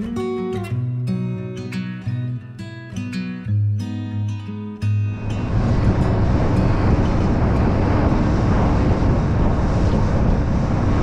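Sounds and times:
wind on microphone: 5.1s - 11.0s
outboard engine drone: 5.2s - 11.0s
water along boat hull: 5.2s - 11.0s.

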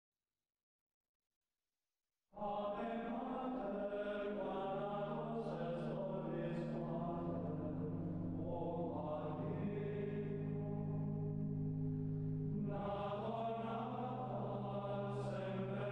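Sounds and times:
choral chant singing: 2.4s - 11.5s, 12.5s - 15.9s
steady low drone: 3.9s - 15.9s.

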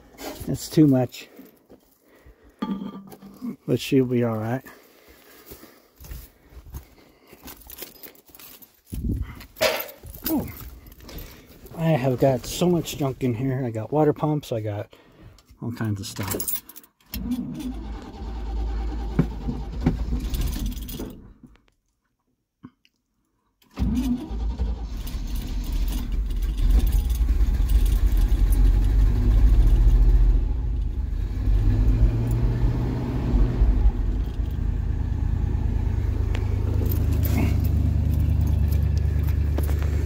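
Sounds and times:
engine revving and idling: 26.0s - 40.0s.

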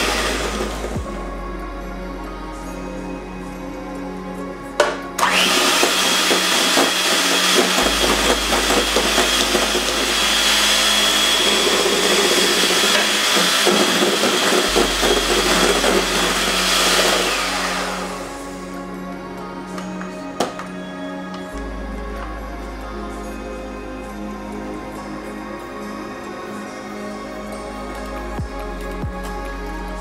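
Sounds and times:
electric hand mixer whining: 0.0s - 1.1s, 4.8s - 18.8s.

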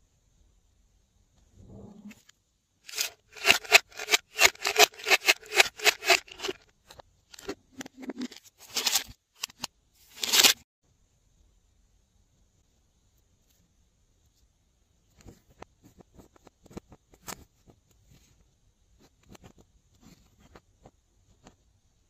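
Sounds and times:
hard plastic scraping: 2.9s - 6.6s.

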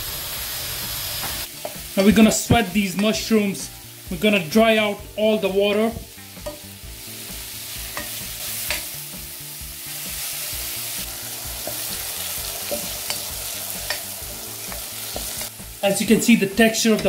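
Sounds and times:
mushrooms sizzling in oil: 0.0s - 17.0s.

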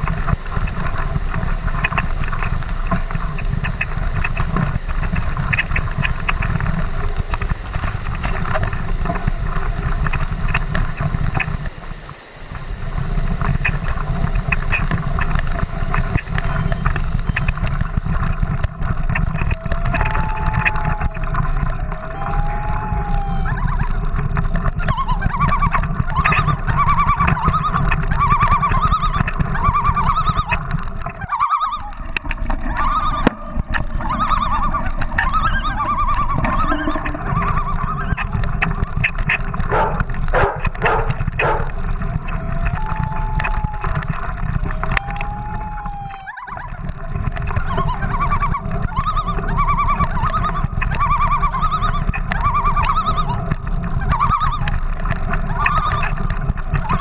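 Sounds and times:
bike rattling clicks: 0.0s - 22.2s, 33.2s - 45.8s
wind and trail rumble: 0.0s - 57.0s
short squeaky tones: 34.0s - 38.7s, 39.7s - 41.7s.

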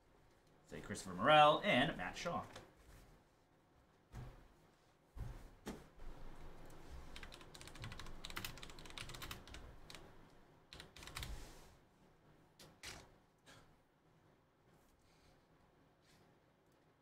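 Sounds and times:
typing on computer keyboard: 7.1s - 10.1s, 10.7s - 11.4s.

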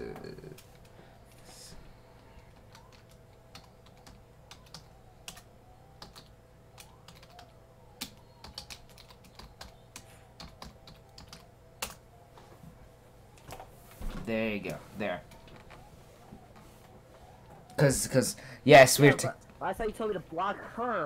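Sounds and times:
faint keyboard typing: 0.0s - 12.2s, 13.3s - 13.8s, 14.5s - 17.8s.

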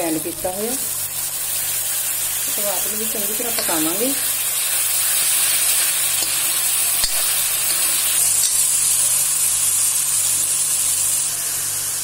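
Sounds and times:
onions sizzling in hot oil: 0.0s - 12.0s
steel spoon stirring: 4.7s - 8.8s.

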